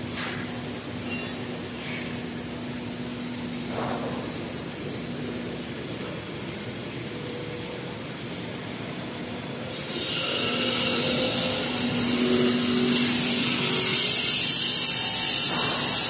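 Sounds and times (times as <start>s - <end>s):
machinery hum: 0.0s - 16.0s
loud hiss: 9.7s - 16.0s.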